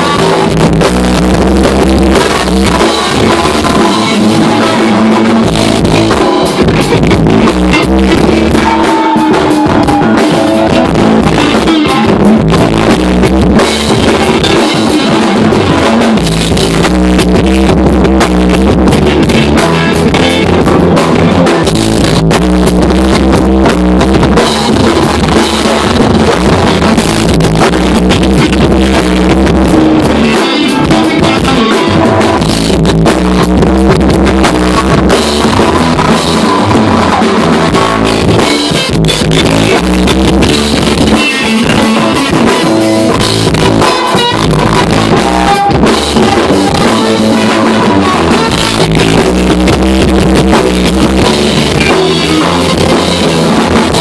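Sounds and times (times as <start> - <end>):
drum kit: 0.0 - 54.0
electric guitars: 0.0 - 54.0.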